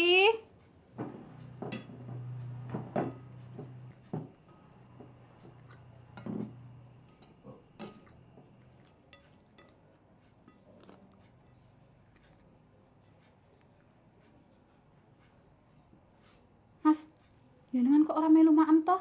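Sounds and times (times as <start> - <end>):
low steady hum: 0.0 - 16.0
cutlery clinking on plates: 1.0 - 11.6.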